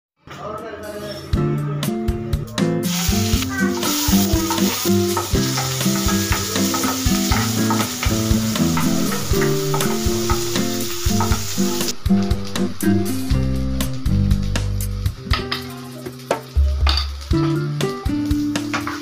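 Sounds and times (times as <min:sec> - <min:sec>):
background music: 0:00.4 - 0:19.0
hot oil sizzling in a pan: 0:02.8 - 0:19.0
spatula stirring in a pan: 0:03.2 - 0:11.8.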